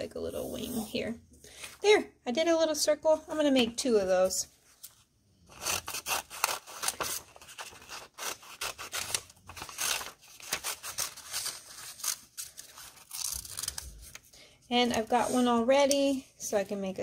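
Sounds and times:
paper rustling: 0:04.6 - 0:15.6
scissors snipping paper: 0:05.5 - 0:14.0.

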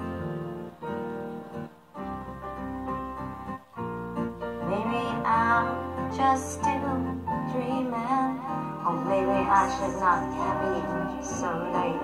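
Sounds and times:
slow song with sustained chords: 0:00.0 - 0:12.0
wavering lead melody: 0:07.9 - 0:12.0.

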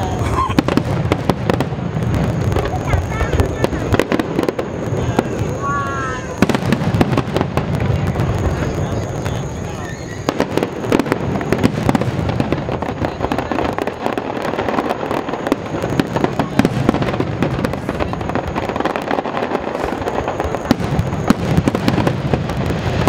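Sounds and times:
fireworks booming and cracking: 0:00.0 - 0:23.0.

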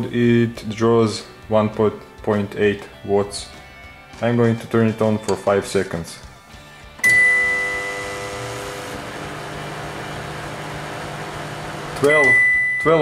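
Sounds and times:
microwave beep: 0:07.0 - 0:09.0, 0:11.4 - 0:13.0
microwave oven humming: 0:07.0 - 0:12.4.

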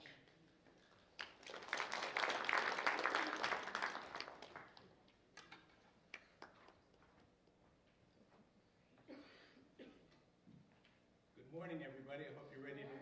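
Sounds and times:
audience applauding: 0:01.2 - 0:05.0.

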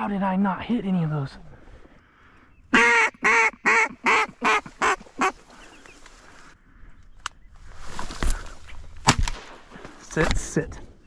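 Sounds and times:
duck quacking: 0:02.7 - 0:05.4.

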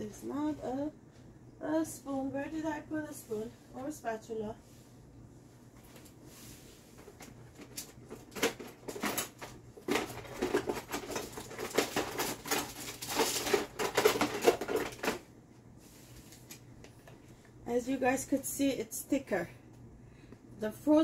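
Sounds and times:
kitchen utensils clattering: 0:07.6 - 0:15.2.

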